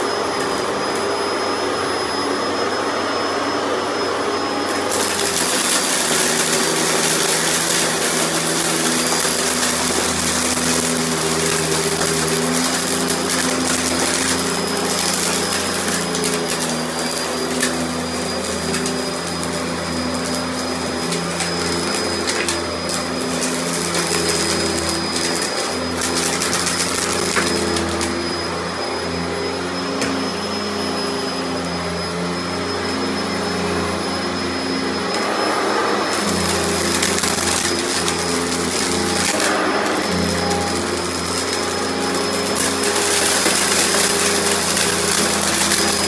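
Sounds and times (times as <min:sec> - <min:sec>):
vacuum cleaner motor whine: 0:00.0 - 0:46.0
debris ticking up vacuum: 0:04.6 - 0:28.6, 0:36.0 - 0:46.0.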